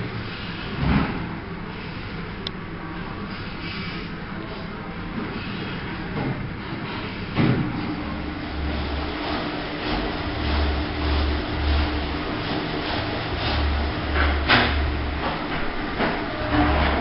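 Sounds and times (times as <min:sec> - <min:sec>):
motor hum: 0:07.6 - 0:17.0
rotating brushes scrubbing boots: 0:08.1 - 0:17.0
machine clunk: 0:13.4 - 0:17.0.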